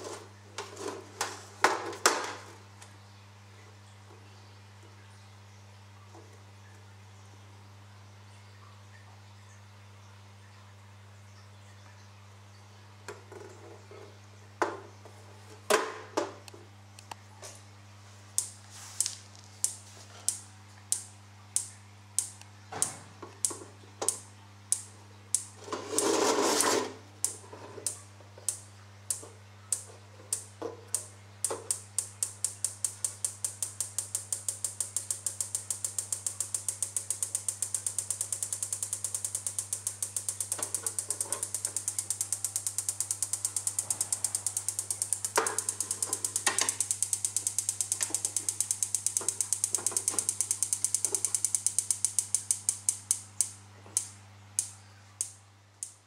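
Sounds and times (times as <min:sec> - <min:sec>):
strobe flash tube clicking: 0:18.4 - 0:25.6, 0:27.2 - 0:56.0.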